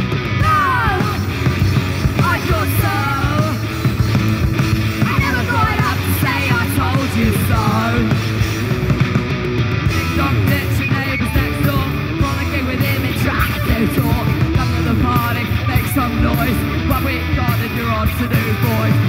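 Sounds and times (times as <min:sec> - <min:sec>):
live rock band playing: 0:00.0 - 0:19.0
person singing: 0:00.4 - 0:01.5, 0:02.1 - 0:03.8, 0:05.0 - 0:08.4, 0:10.0 - 0:19.0.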